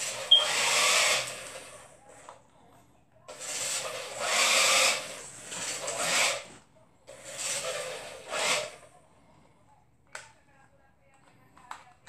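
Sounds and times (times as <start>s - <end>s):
toy truck motor whirring: 0.0s - 2.0s, 3.3s - 8.8s.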